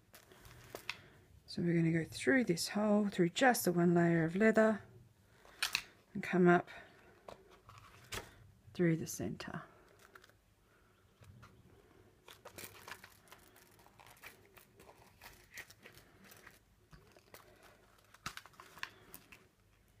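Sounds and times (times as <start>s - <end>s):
thread drawn through leather: 12.2s - 19.5s
leather pouch rustling and clicks: 12.2s - 20.0s.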